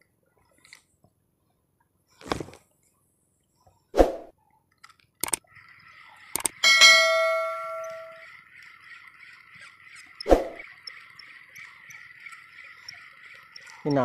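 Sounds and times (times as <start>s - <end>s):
notification bell ding: 6.6s - 8.1s.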